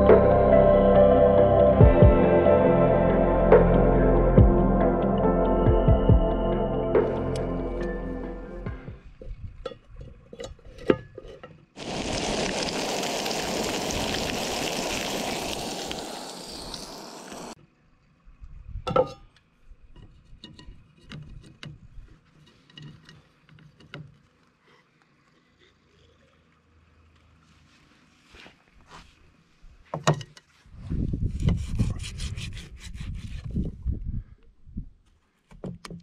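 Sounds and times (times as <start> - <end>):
fish fillets sizzling in pan: 11.8 - 17.6.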